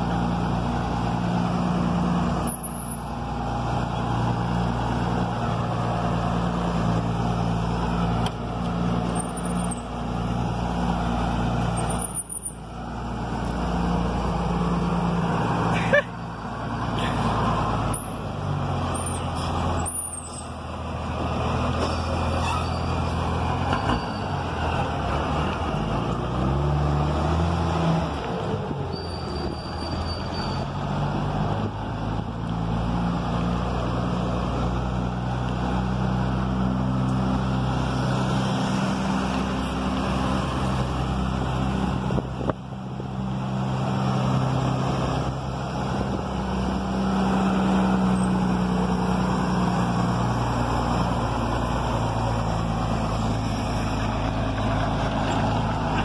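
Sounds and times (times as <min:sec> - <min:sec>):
truck diesel engine accelerating: 0:00.0 - 0:56.0.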